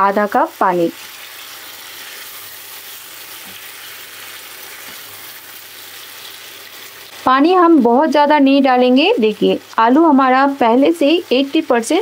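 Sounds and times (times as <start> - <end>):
vegetables sizzling in a pan: 0.0 - 12.0
spatula stirring in a pan: 0.9 - 7.2.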